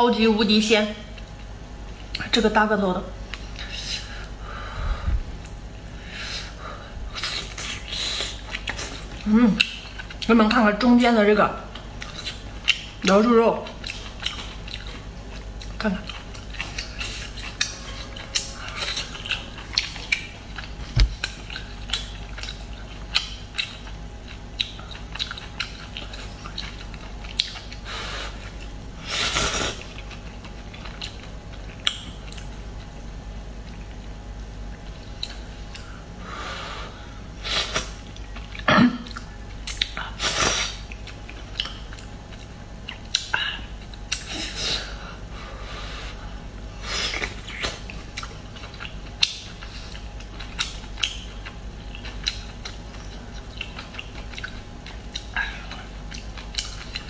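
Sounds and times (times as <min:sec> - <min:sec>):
wet chewing: 0:13.6 - 0:32.9, 0:47.1 - 0:57.0.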